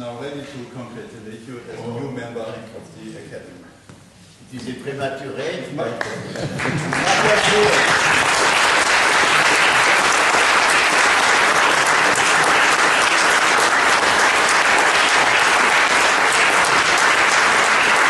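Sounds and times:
audience applause: 6.4 - 18.0.

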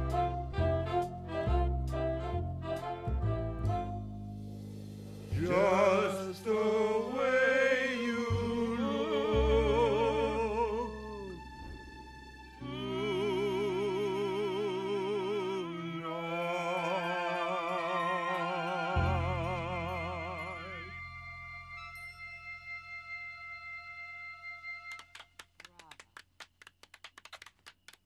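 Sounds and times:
low bass notes: 0.0 - 15.2
men singing in harmony: 5.3 - 11.4, 12.6 - 21.0.

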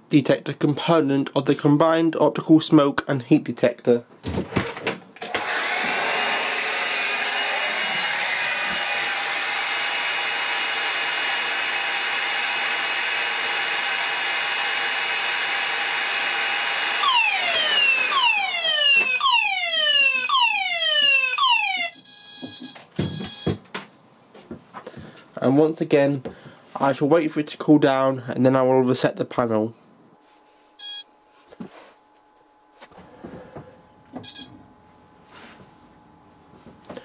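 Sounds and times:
hair dryer blowing: 5.2 - 19.3
alarm sounder whooping sweeps: 17.0 - 22.0
steady high alarm tone: 17.0 - 23.6, 30.8 - 31.1, 34.2 - 34.6.

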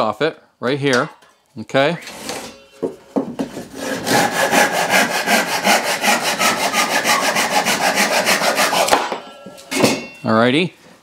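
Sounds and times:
hand saw cutting wood: 3.4 - 9.2.

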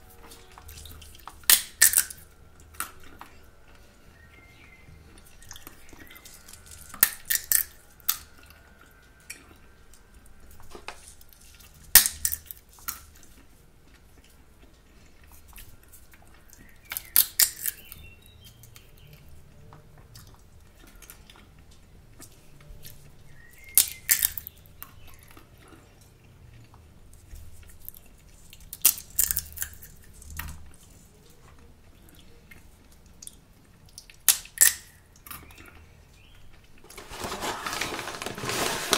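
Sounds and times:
sunflower seed shells cracking: 0.2 - 3.5, 5.2 - 13.5, 15.3 - 19.3, 22.2 - 25.4, 27.6 - 31.1, 32.9 - 35.8.

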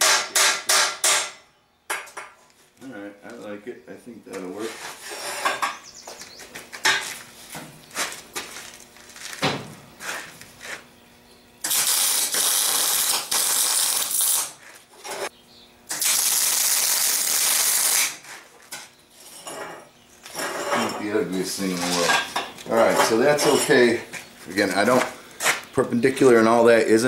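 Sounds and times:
welding arc crackling: 11.6 - 14.6, 15.9 - 18.2.

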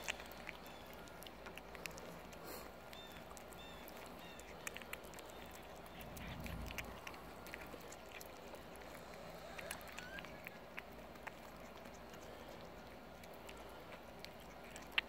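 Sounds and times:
cats chewing wet clicks: 0.0 - 15.0
brief low rumble: 6.0 - 7.0.

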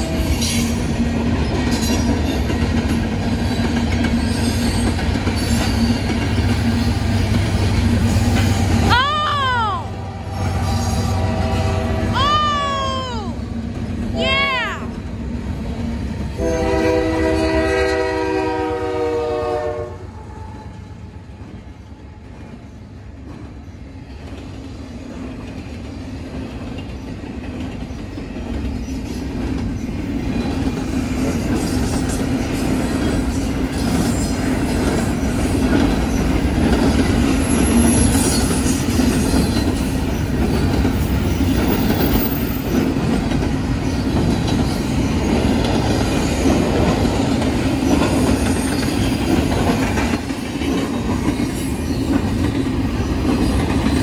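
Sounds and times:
freight train wheels rumbling: 0.0 - 54.0
locomotive air horn chord: 9.9 - 12.2, 16.4 - 20.6.

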